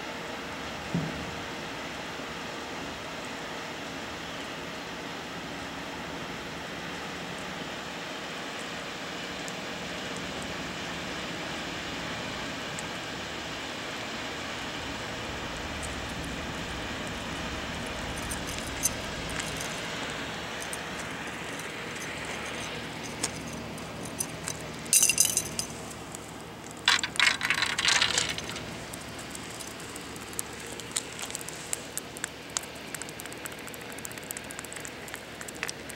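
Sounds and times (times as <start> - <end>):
fish flapping on concrete: 26.7 - 35.9.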